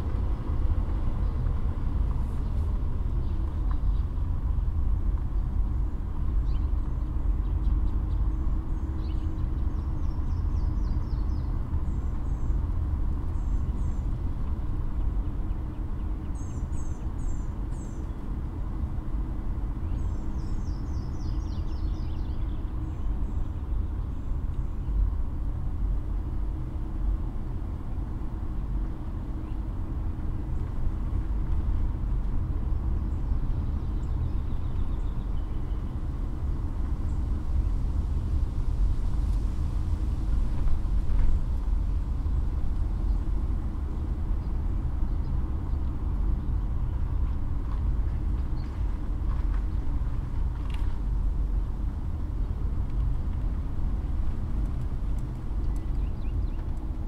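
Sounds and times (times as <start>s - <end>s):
steady low rumble: 0.0s - 57.0s.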